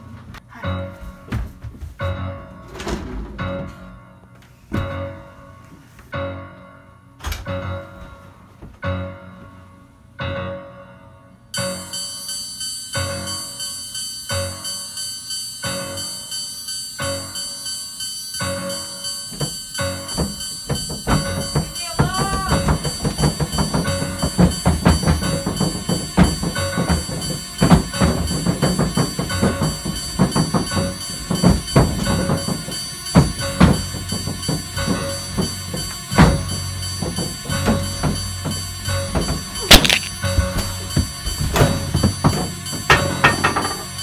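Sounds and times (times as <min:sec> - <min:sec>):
percussive hits: 0:19.4 - 0:32.6, 0:36.2 - 0:44.0.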